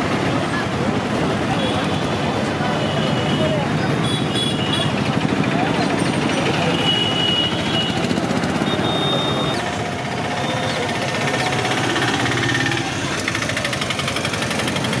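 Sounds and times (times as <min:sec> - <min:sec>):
roadside traffic: 0:00.0 - 0:15.0
small engine running: 0:07.5 - 0:15.0.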